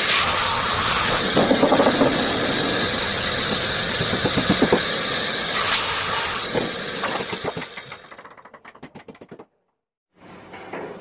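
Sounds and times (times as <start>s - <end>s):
table saw blade whining: 0.0s - 7.8s.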